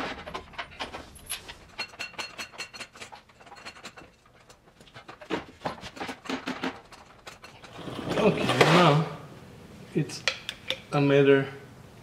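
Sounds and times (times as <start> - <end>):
metal tools clinking: 0.2 - 5.2, 5.9 - 8.6.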